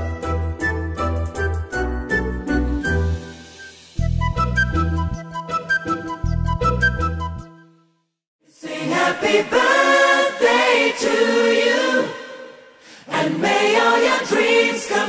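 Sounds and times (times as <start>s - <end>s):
choir singing held phrases: 8.5s - 15.0s.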